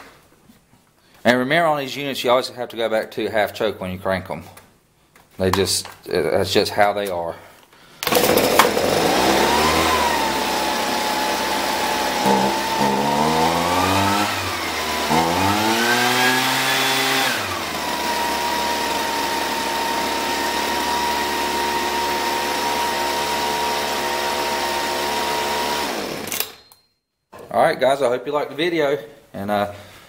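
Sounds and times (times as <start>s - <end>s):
leaf blower engine revving: 8.0s - 26.5s.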